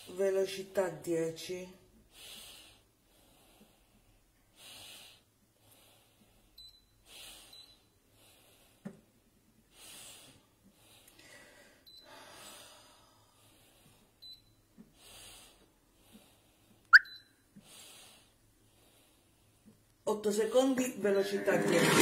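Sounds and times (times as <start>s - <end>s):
soft breathing: 2.0s - 16.9s, 17.6s - 19.9s
short beeps: 16.9s - 17.4s.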